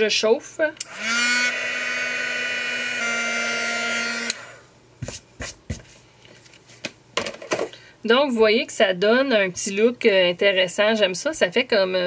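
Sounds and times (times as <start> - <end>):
heat gun running: 0.8 - 4.7.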